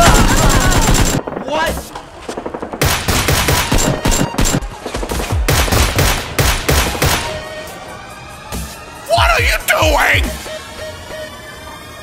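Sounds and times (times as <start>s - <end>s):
rapid gunfire: 0.0s - 7.2s.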